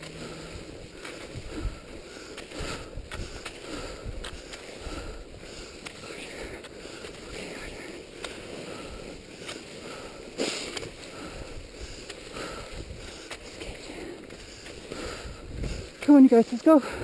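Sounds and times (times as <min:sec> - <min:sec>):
skis swishing and scraping on snow: 0:00.0 - 0:17.0.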